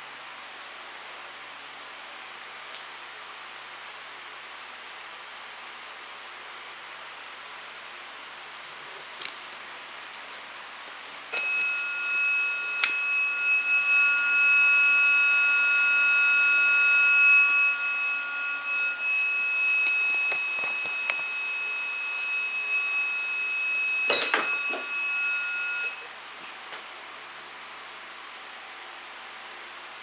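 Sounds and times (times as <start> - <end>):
high-pitched electronic timer buzz: 11.3 - 26.0.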